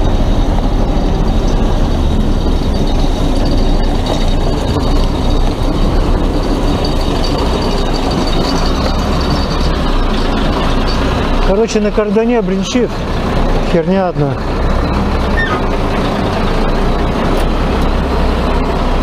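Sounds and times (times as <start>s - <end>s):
diesel loader engine running: 0.0s - 19.0s
clattering rattle: 0.1s - 13.5s.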